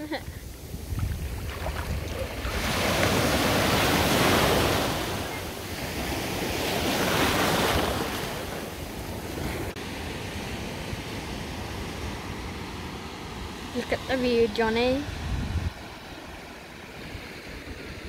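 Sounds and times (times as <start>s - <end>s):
wind rumbling on microphone: 0.0s - 9.8s, 13.7s - 18.0s
small waves breaking: 0.0s - 18.0s.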